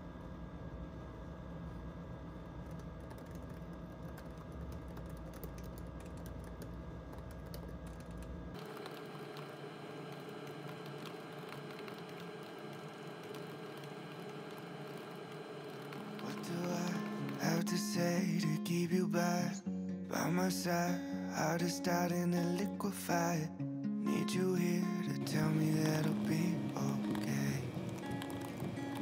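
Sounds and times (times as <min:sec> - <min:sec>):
laptop keyboard typing: 0:02.6 - 0:18.2, 0:25.2 - 0:29.0.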